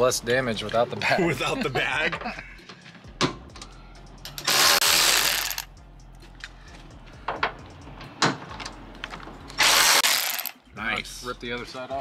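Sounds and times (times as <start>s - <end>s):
power tool burst: 4.4s - 5.7s, 9.6s - 10.5s.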